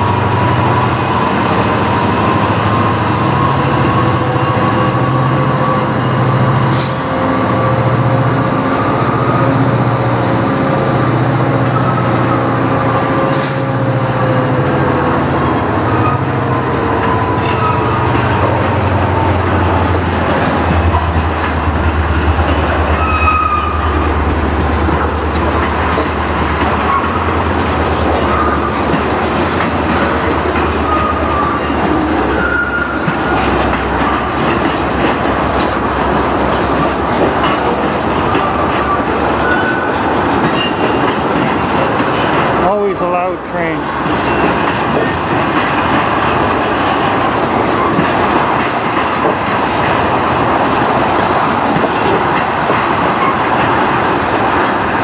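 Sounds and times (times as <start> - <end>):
train wheels rumbling on rails: 0.0 - 55.0
wheel squeals: 30.6 - 33.8, 38.0 - 41.1.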